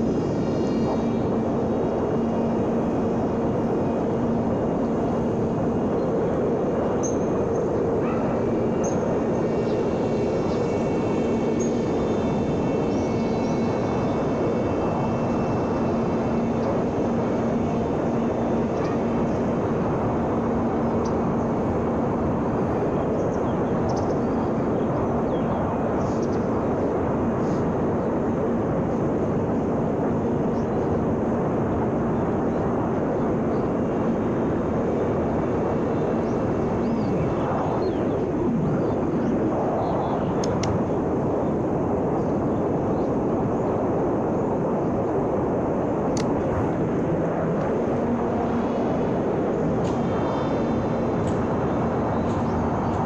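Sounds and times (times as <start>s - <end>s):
rush of air: 24.8s - 30.4s, 32.7s - 53.0s.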